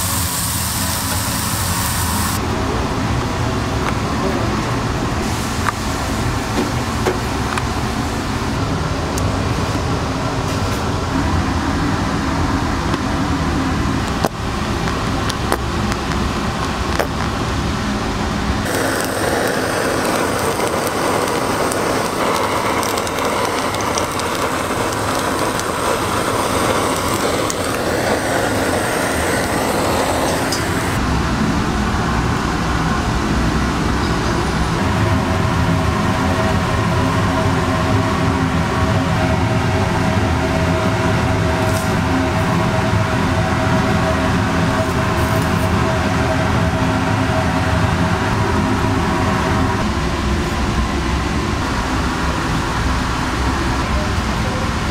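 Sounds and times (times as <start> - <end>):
gas blowtorch hissing: 0.0 - 2.6, 3.7 - 31.0, 34.7 - 54.9
low hum: 7.3 - 54.9
sharp clicks: 18.7 - 28.6.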